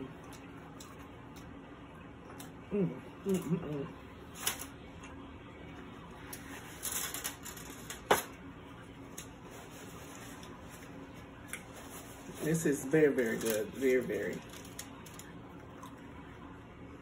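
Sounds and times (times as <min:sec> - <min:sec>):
foil and paper crinkling: 0:06.4 - 0:08.2, 0:09.1 - 0:15.3.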